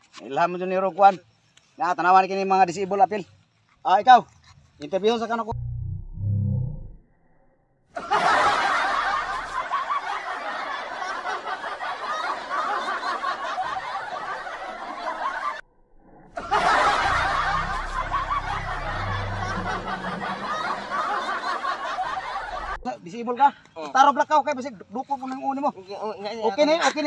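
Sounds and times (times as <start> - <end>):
crowd laughing: 8.0 - 15.6, 16.3 - 22.9.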